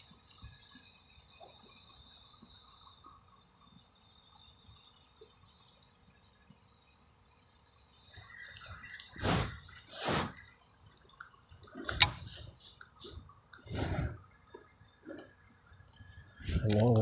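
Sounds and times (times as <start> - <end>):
insects chirring: 0.0 - 17.0
loud rustle: 9.1 - 10.5.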